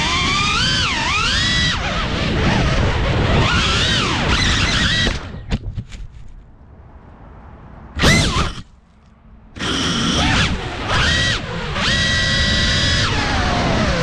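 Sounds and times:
drone motors whining: 0.0s - 5.5s, 8.0s - 8.8s, 9.5s - 14.0s.

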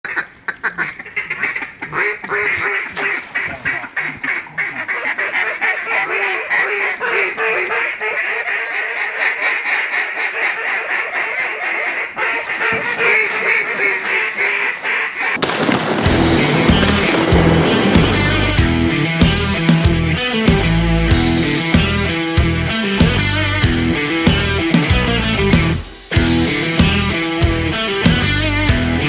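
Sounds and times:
ducks quacking: 0.0s - 20.3s
loud music: 15.5s - 29.0s.

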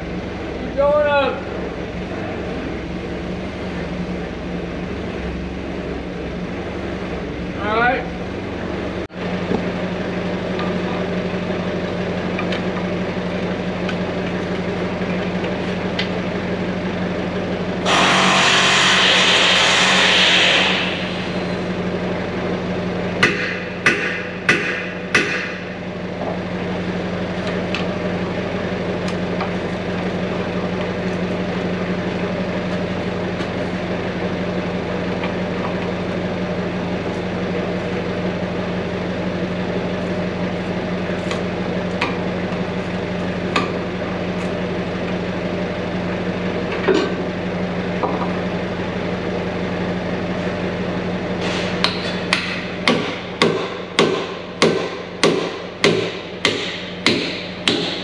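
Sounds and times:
hammer striking metal: 23.2s - 25.6s, 51.8s - 58.0s.

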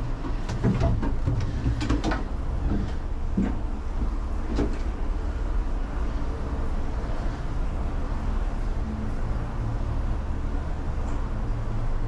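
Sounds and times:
cabin clunks and rattles: 0.0s - 4.8s
low mechanical rumble: 0.0s - 12.0s.

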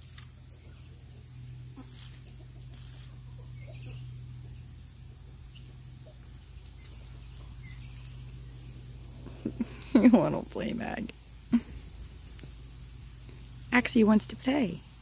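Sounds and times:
steady low hum: 0.0s - 15.0s
faint chicken clucks: 0.4s - 8.2s.

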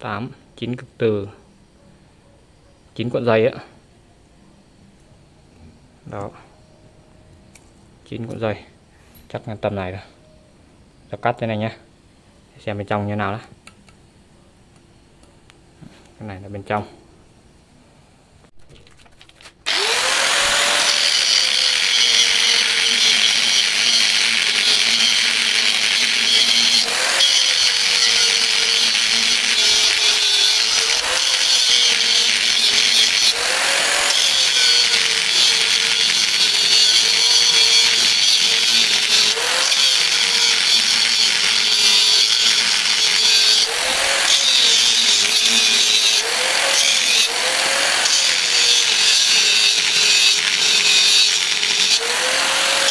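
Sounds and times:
angle grinder cutting steel: 19.6s - 52.9s.

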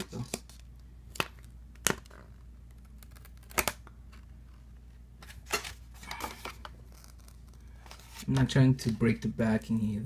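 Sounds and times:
paper card rustling and scraping: 2.0s - 9.1s.

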